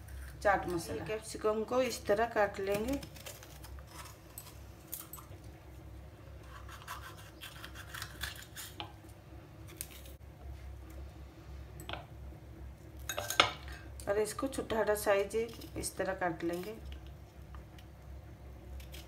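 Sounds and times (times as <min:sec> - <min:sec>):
low steady hum: 0:00.0 - 0:19.0
knife cutting pepper: 0:06.4 - 0:08.9.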